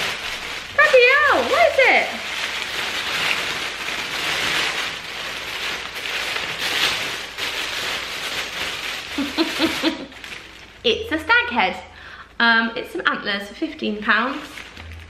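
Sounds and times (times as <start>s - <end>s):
paper rustling and crinkling: 0.0s - 10.8s, 14.2s - 15.0s.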